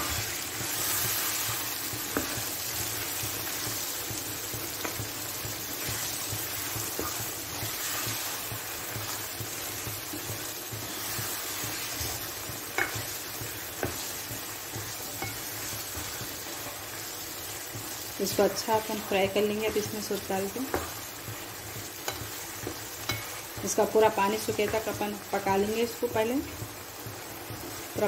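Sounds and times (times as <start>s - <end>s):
meat sizzling in oil: 0.0s - 28.0s
spatula tapping on pan: 1.9s - 2.5s, 4.0s - 16.4s, 20.6s - 23.7s.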